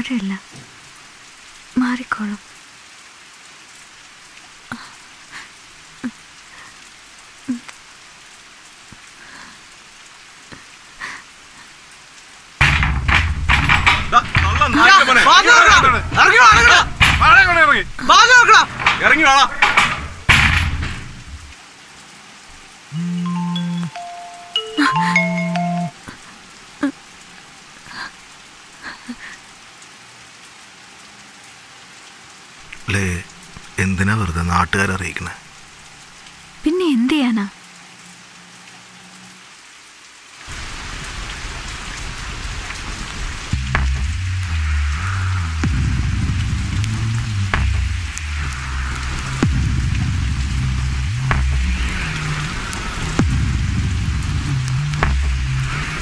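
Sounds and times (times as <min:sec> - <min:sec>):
steady rain: 0:00.0 - 0:56.0
water drip: 0:43.5 - 0:56.0.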